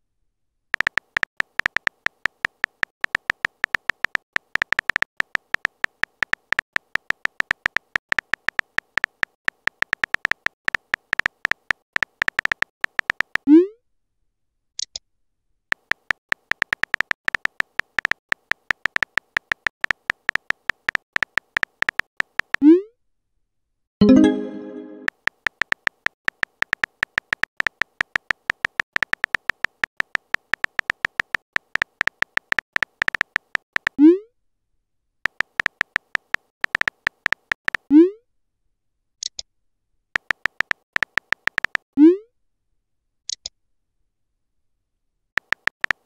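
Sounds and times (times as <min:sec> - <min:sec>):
synthetic keyboard typing ticks: 0:00.7 - 0:13.5, 0:15.7 - 0:22.7, 0:24.0 - 0:34.0, 0:35.2 - 0:37.9, 0:40.2 - 0:41.9, 0:45.4 - 0:46.0.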